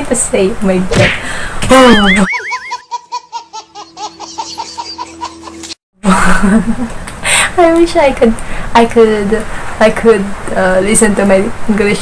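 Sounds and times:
baby laughing: 1.8 - 5.8.

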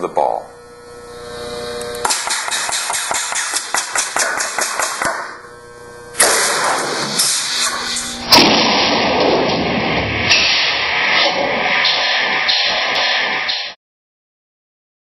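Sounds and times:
air cannon bang: 2.0 - 5.3, 6.2 - 13.8
rapid sharp clicks: 2.0 - 5.3
rush of air: 6.4 - 13.8.

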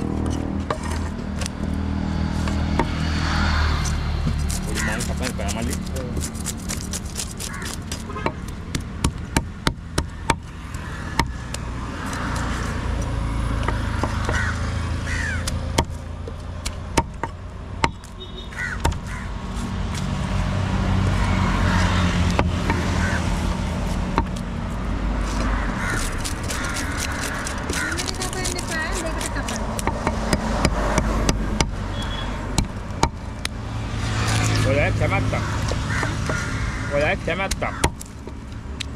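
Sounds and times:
low traffic rumble: 0.0 - 38.9.

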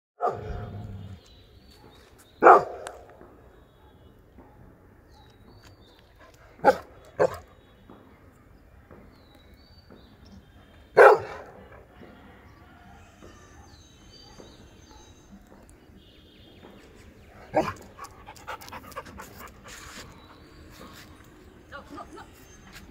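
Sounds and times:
dog barking: 0.2 - 0.8, 1.8 - 3.0, 6.6 - 7.4, 11.0 - 11.6, 13.5 - 15.2, 17.4 - 17.8.

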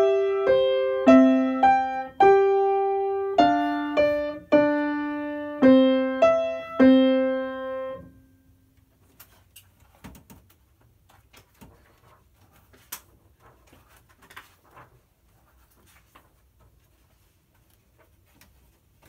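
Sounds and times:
piano note: 0.0 - 8.2.

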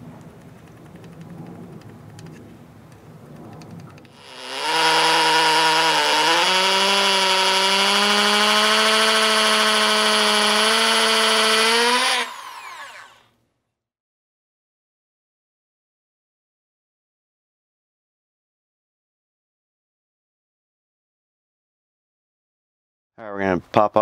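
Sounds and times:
hammer drill boring into wall: 4.1 - 13.3.

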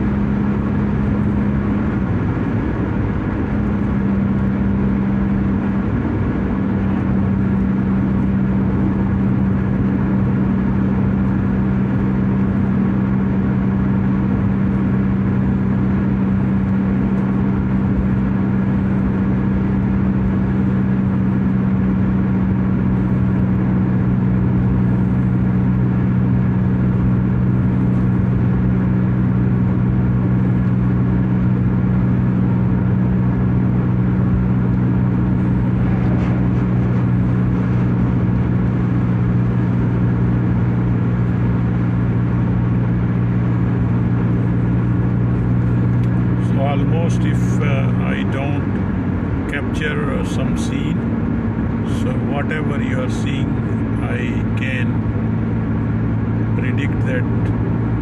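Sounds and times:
car cabin road drone: 0.0 - 58.0.

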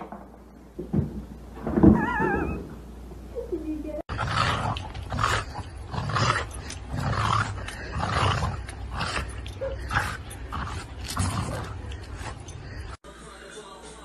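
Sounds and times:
dog growling and huffing: 4.1 - 13.0.

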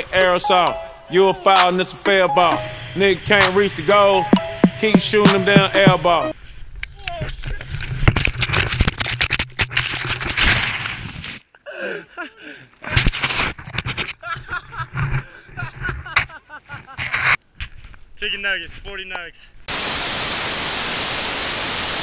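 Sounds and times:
hip-hop backing track: 0.2 - 6.3.

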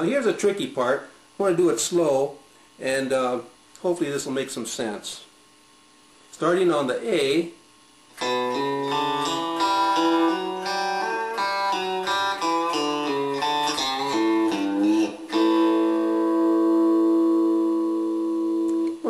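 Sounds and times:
electric guitar lick: 8.2 - 19.0.

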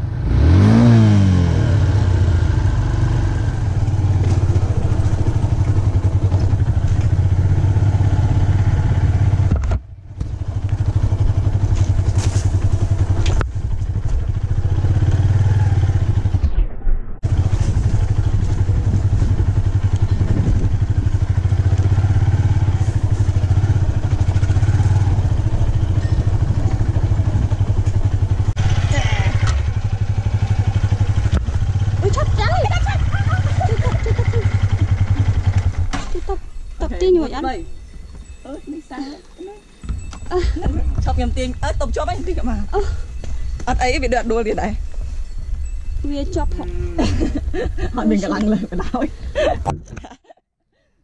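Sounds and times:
motorcycle engine revving: 0.0 - 16.5, 17.2 - 36.4.

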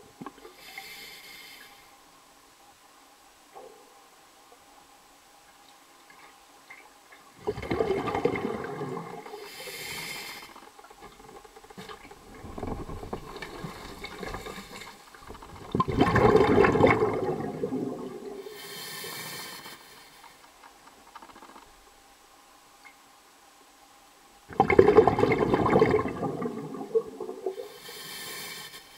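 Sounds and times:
underwater bubbling and gurgling: 5.5 - 22.1, 24.4 - 28.9.

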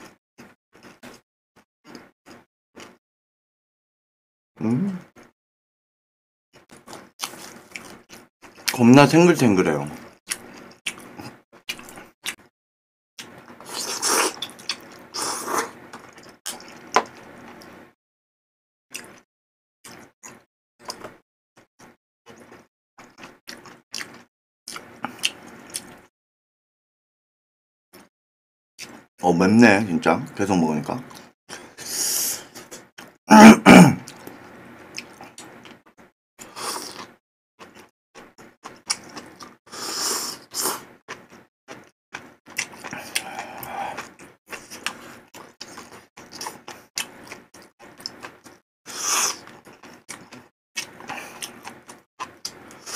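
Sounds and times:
wet chewing and smacking: 6.7 - 8.8, 13.2 - 15.2, 15.9 - 17.8, 36.8 - 39.6, 41.1 - 48.6, 49.3 - 52.8
slurping noodles: 13.5 - 17.8, 36.4 - 52.9
loud slurping from spoon: 13.6 - 15.8, 36.4 - 37.1, 39.7 - 40.9, 48.9 - 49.6
man coughing: 33.3 - 34.0.

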